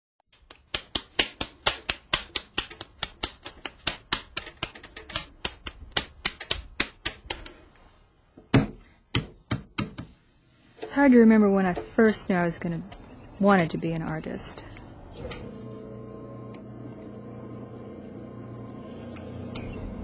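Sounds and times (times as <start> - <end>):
rapid sharp tapping: 0.4 - 7.5.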